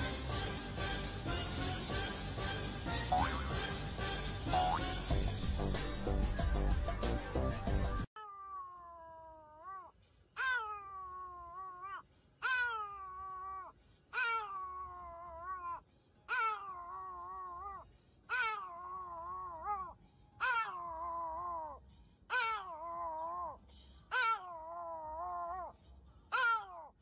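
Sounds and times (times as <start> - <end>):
music: 0.0 - 8.1
dog howling: 8.2 - 25.7, 26.3 - 26.9.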